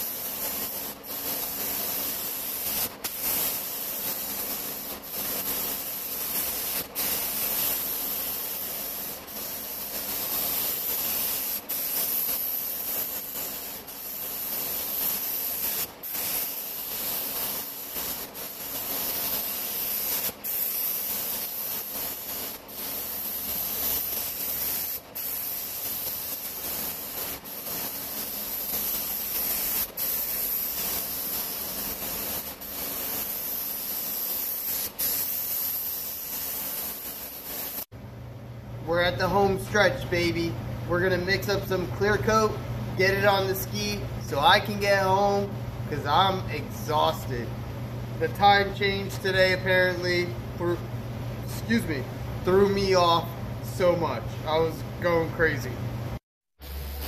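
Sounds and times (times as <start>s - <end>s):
paint spray gun hissing: 0.0s - 37.9s.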